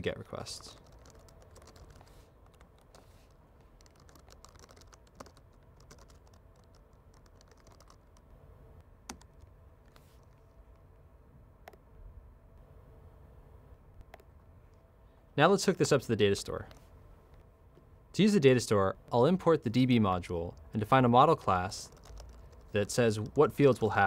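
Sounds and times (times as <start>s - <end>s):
computer keyboard typing: 0.6s - 3.1s, 3.7s - 8.2s, 9.1s - 9.5s, 21.7s - 23.5s.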